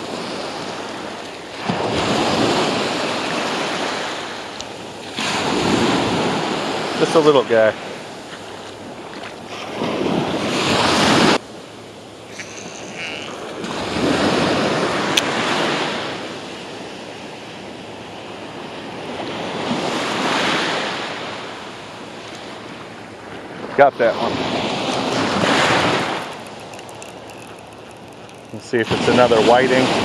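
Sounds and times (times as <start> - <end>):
surf waves breaking: 0.0 - 11.4, 18.2 - 30.0.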